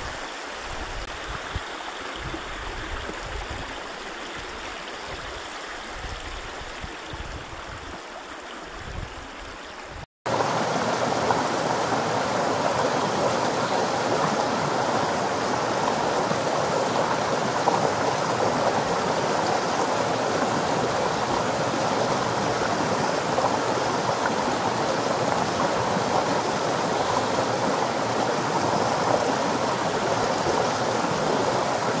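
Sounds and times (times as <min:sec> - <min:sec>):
river rushing over rocks: 0:10.3 - 0:32.0.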